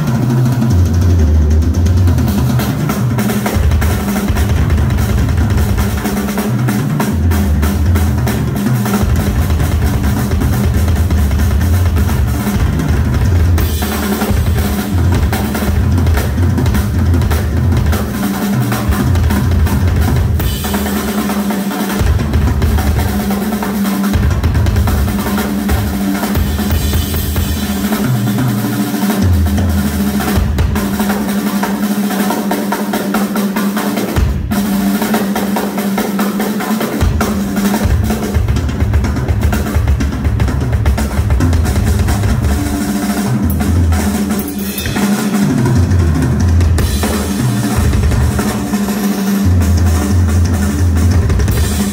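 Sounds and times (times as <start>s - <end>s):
bass drum strokes: 0.0s - 28.5s, 37.0s - 51.9s.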